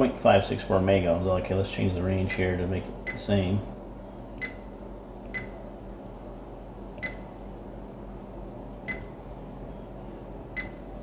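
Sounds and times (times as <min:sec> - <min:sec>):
steady low hum: 0:00.0 - 0:11.0
multimeter beeping: 0:04.4 - 0:04.7, 0:05.3 - 0:05.6, 0:07.0 - 0:07.3, 0:08.9 - 0:09.2, 0:10.6 - 0:10.9.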